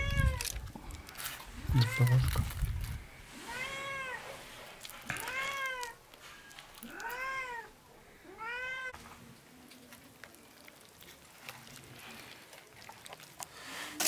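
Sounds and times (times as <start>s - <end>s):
cat meowing: 6.8s - 9.0s.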